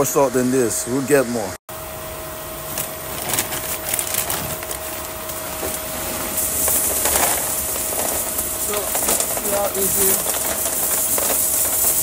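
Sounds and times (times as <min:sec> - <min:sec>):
salt pellets pouring into plastic tank: 0:03.0 - 0:12.0.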